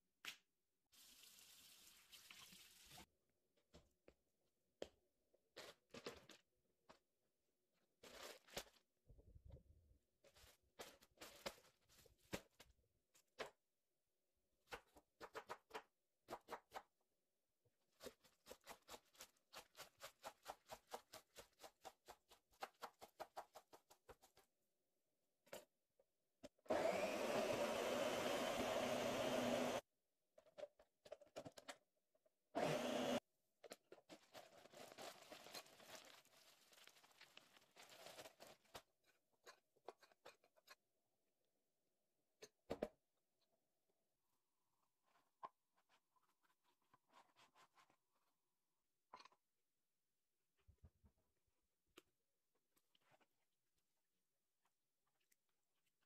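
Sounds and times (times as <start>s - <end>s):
blender running: 26.7s - 29.8s, 32.6s - 33.2s.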